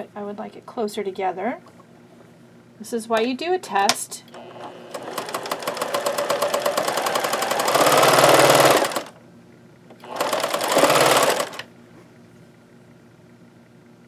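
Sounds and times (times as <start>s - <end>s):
sewing machine stitching: 4.4s - 9.2s, 10.0s - 11.6s.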